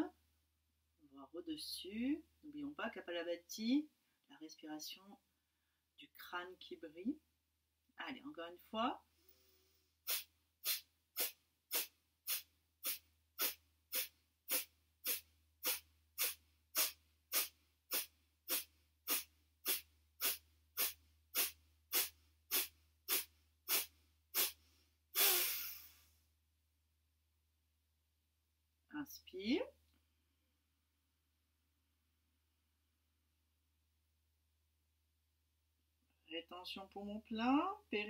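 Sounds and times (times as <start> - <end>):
forceful exhalations through nose: 9.2 - 26.2.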